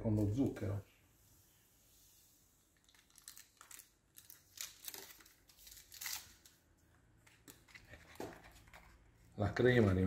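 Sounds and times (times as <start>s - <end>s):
paper packet tearing and crinkling: 2.8s - 6.5s.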